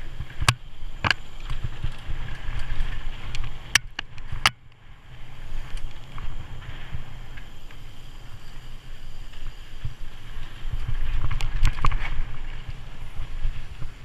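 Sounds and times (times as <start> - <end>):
bike rattling clicks: 0.0 - 14.0
bike tyres and wind rumble: 0.0 - 14.0.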